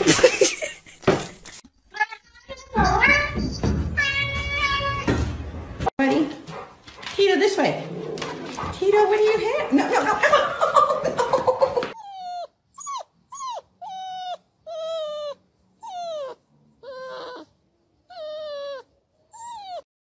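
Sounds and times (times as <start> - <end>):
small dog whining: 12.0 - 19.9.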